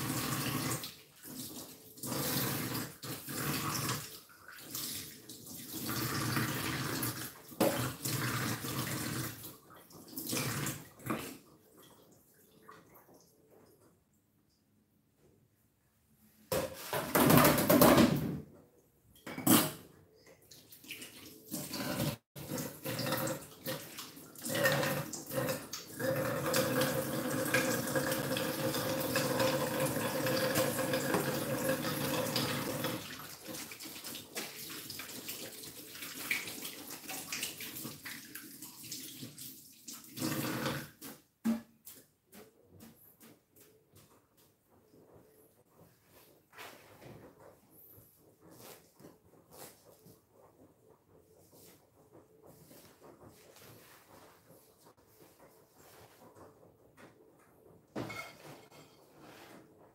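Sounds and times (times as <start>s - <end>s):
tap water running into sink: 0.0s - 11.4s, 20.8s - 41.6s
dishes clattering: 19.2s - 19.9s, 58.0s - 59.2s.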